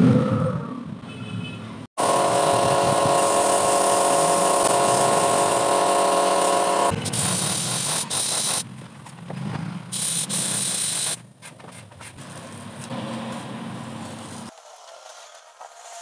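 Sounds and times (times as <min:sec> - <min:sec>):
airbrush hissing: 0:02.3 - 0:08.6, 0:10.0 - 0:11.2.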